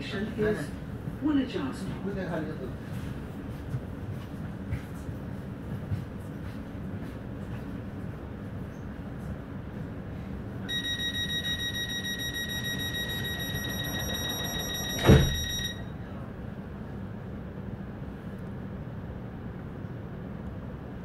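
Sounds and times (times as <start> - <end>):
train low hum: 0.0 - 21.0
sliding doors shutting thud: 10.7 - 15.8
rapid high-pitched warning beeps: 10.7 - 15.9.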